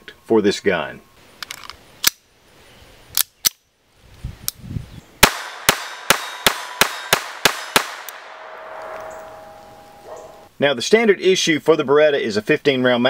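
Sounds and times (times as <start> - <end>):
pistol handling clicks: 1.4 - 2.2, 3.1 - 3.6
pistol shots: 5.2 - 9.5.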